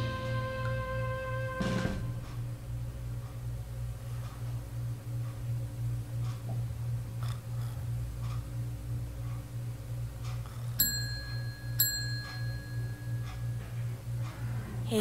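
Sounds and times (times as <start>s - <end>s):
low pulsing hum: 0.0s - 15.0s
shop door bell ringing: 10.8s - 14.0s.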